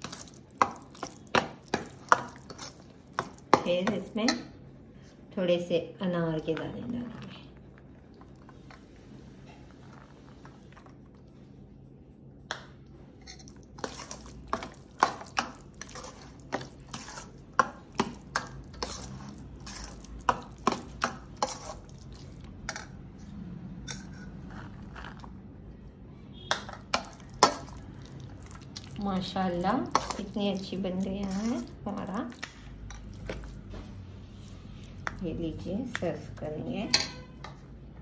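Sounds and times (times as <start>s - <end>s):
metal spoon scraping steel bowl: 13.3s - 22.8s, 29.5s - 32.1s, 36.0s - 37.4s.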